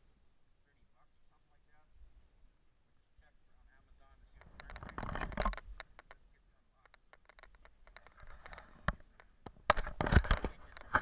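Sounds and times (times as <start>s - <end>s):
sharp clicks: 4.3s - 6.2s, 6.8s - 11.0s.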